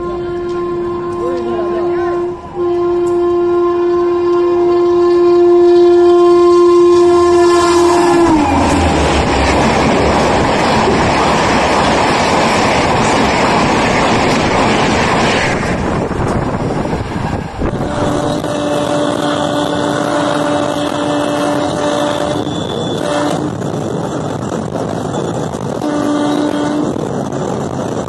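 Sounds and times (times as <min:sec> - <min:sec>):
train coaches rushing and clattering: 0:00.0 - 0:05.3, 0:06.9 - 0:28.0
locomotive horn blast: 0:00.0 - 0:10.0, 0:17.6 - 0:23.7, 0:25.7 - 0:27.1.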